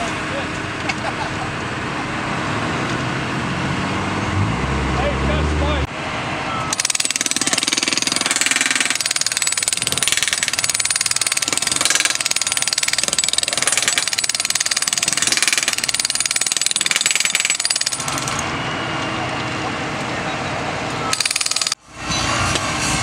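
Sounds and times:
track tool hammering rail: 0:06.7 - 0:19.4.

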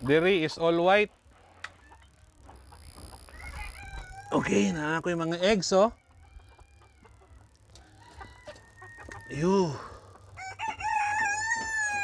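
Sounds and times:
rooster crowing: 0:03.3 - 0:04.7, 0:05.7 - 0:12.0.

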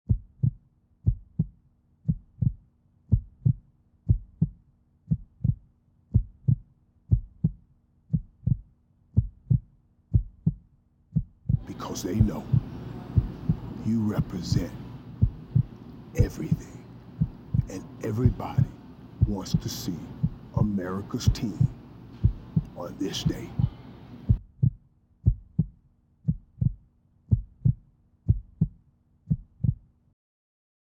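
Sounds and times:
heartbeat thumps: 0:00.1 - 0:29.9
faint low hum: 0:11.4 - 0:29.9.

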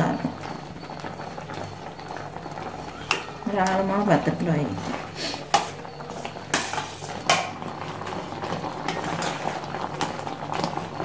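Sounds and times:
liquid bubbling: 0:00.0 - 0:11.0
ladle scraping steel pot: 0:04.7 - 0:07.5, 0:08.5 - 0:09.6.

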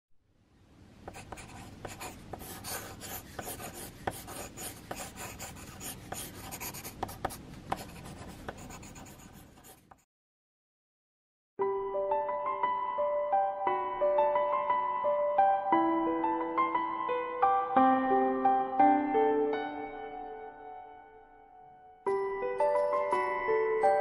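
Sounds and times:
pencil scratching on paper: 0:01.1 - 0:10.1.

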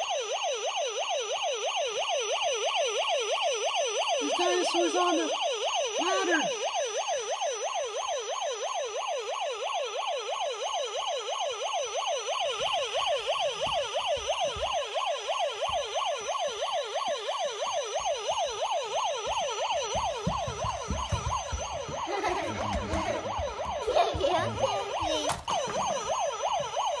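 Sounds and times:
toy fire truck siren: 0:00.0 - 0:27.0
toys knocking and rattling: 0:19.8 - 0:26.8.

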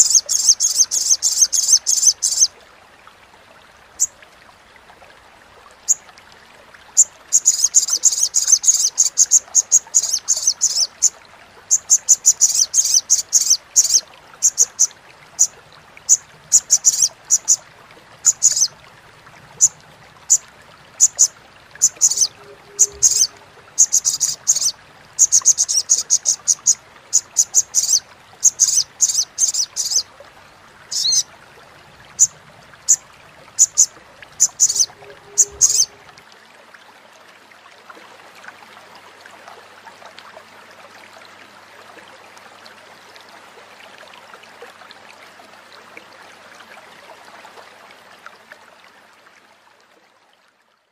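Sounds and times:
bird chattering calls: 0:16.5 - 0:17.6, 0:18.3 - 0:18.7, 0:21.0 - 0:30.0, 0:30.9 - 0:31.2, 0:33.6 - 0:36.0.

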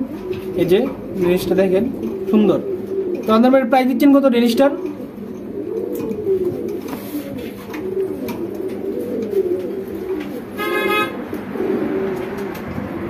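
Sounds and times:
pigeons cooing: 0:00.0 - 0:13.0
horn toot: 0:10.6 - 0:11.2.

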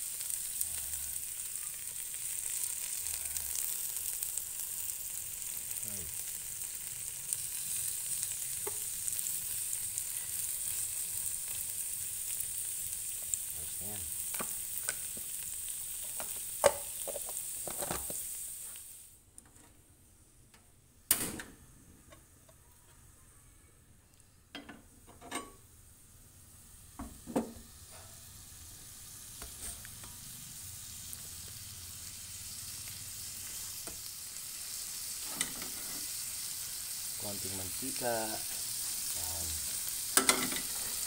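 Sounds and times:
shrimp sizzling on hot plate: 0:00.0 - 0:19.2, 0:24.6 - 0:41.0.

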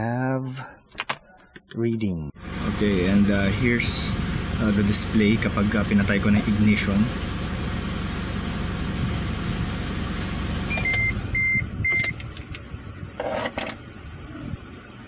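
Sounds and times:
car engine idling: 0:02.4 - 0:15.0
short electronic beeps: 0:10.7 - 0:12.2.

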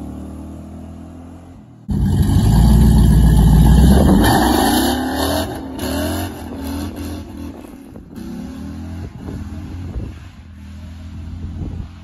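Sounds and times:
truck exhaust rumble: 0:00.0 - 0:12.0.

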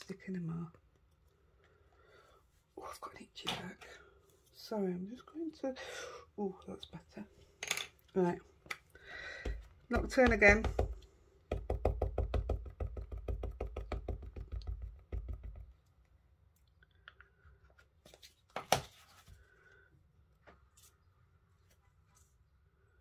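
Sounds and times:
ink pad tapping rubber stamp: 0:09.5 - 0:15.7.

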